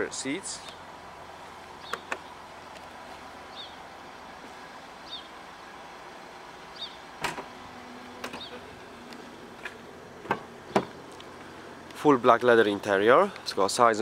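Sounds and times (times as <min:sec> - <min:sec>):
small bird chirping: 0:03.5 - 0:03.8, 0:05.0 - 0:05.4, 0:06.7 - 0:07.1, 0:08.4 - 0:08.6.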